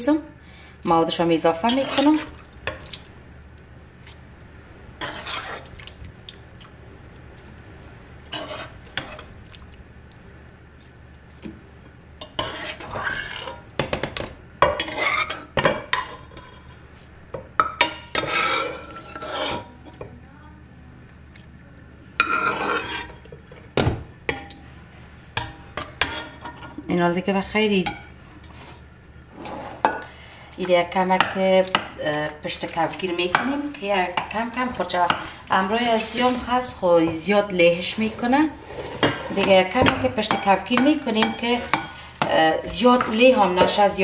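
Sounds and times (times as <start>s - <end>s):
faint low hum: 0.0s - 44.0s
metal spoon scraping a pan: 1.5s - 2.4s, 5.0s - 5.7s, 8.3s - 9.3s, 12.2s - 13.7s, 14.6s - 16.8s, 17.6s - 19.9s, 22.2s - 23.7s, 25.4s - 26.8s, 27.8s - 44.0s.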